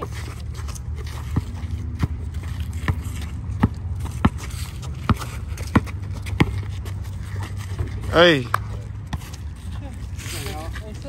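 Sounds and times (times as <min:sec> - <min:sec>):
basketball bouncing on concrete: 0:00.1 - 0:08.0.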